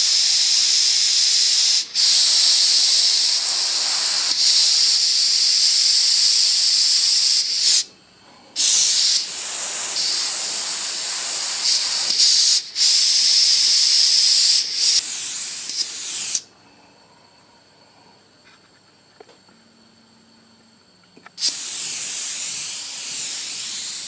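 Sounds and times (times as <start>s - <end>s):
airbrush spraying hiss: 0.0s - 7.9s, 8.6s - 16.5s, 21.4s - 24.0s.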